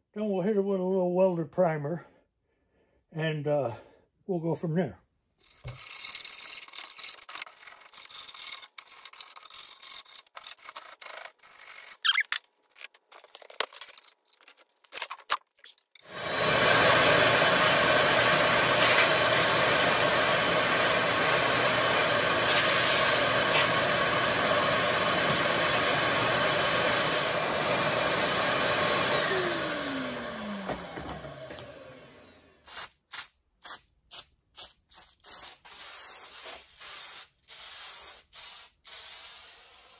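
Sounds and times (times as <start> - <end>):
scrapes and clicks of grit: 5.4 - 16.1
shop vacuum running: 16.0 - 32.7.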